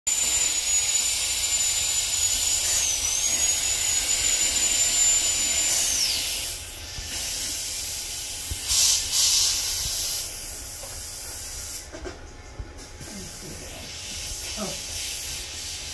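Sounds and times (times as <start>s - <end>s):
dental drill whining: 0.1s - 11.0s
loud hissing bursts: 5.6s - 11.9s, 13.1s - 15.9s
suction and water spray hiss: 5.7s - 11.9s, 13.1s - 15.9s.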